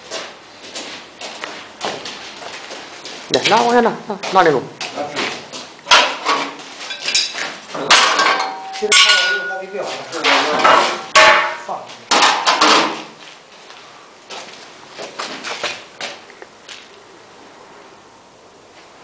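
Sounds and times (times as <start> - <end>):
steel parts clanging: 5.9 - 13.0.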